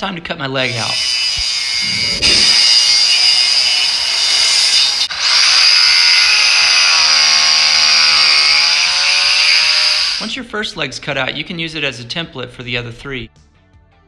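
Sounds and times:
electric power saw cutting wood: 0:00.8 - 0:10.2.

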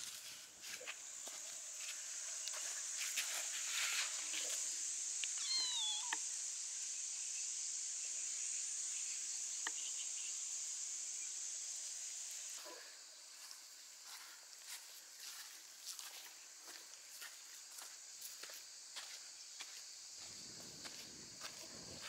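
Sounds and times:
insects chirring: 0:00.0 - 0:22.0
kitten meowing: 0:05.3 - 0:06.2.

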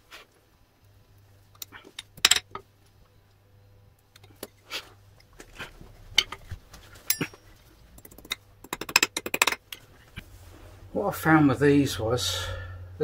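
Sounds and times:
metal tools clicking and knocking: 0:01.6 - 0:02.7, 0:06.2 - 0:09.8
ringing metallic clink: 0:07.0 - 0:07.6.

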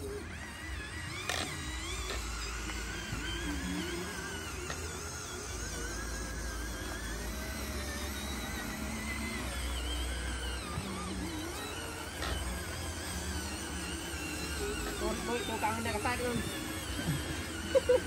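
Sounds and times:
toy truck motors whirring: 0:00.0 - 0:18.0.

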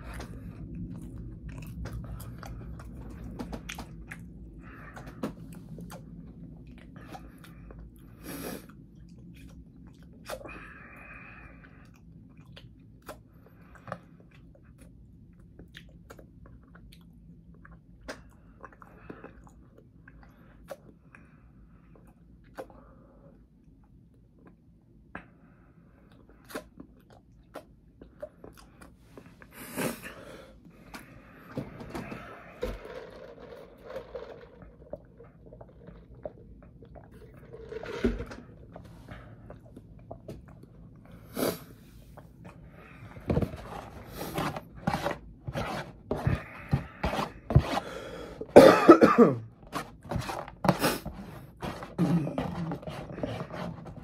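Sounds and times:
person coughing: 0:48.5 - 0:49.5, 0:52.0 - 0:52.8.

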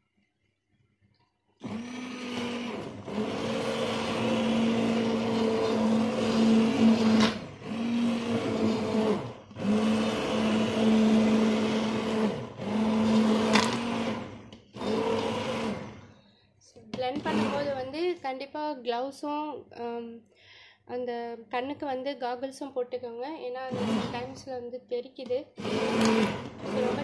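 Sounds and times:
electric stick blender running: 0:01.6 - 0:16.2, 0:17.0 - 0:17.9, 0:23.6 - 0:24.5, 0:25.5 - 0:27.0.

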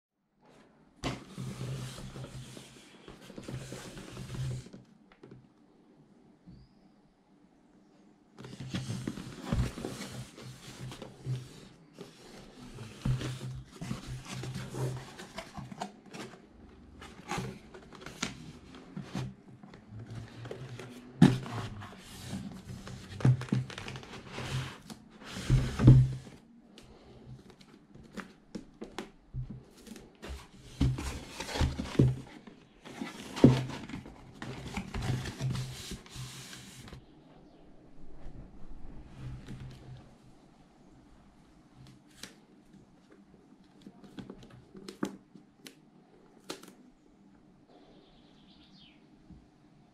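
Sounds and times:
cardboard scraping and rustling: 0:01.0 - 0:04.8, 0:08.4 - 0:26.4, 0:29.6 - 0:37.0.

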